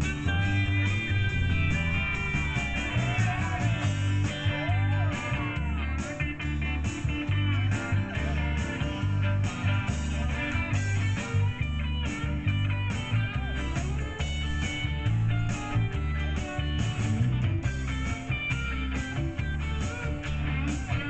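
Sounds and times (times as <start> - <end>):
electric guitar lead line: 0.0 - 21.0
live country band playing: 0.0 - 21.0.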